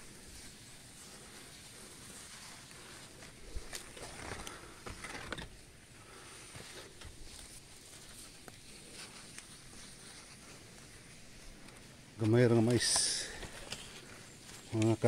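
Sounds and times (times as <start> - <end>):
footsteps through dry leaves: 0.0 - 5.3.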